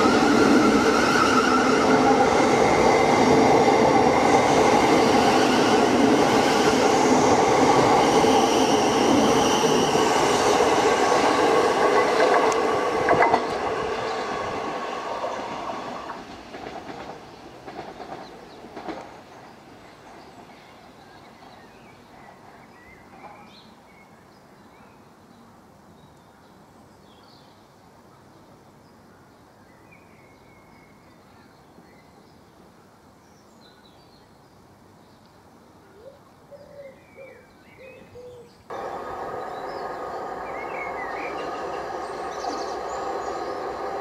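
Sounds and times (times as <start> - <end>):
electric train rumble: 0.0 - 20.2, 38.7 - 44.0
birds chirping: 36.6 - 44.0
train traction motor whine: 38.7 - 44.0.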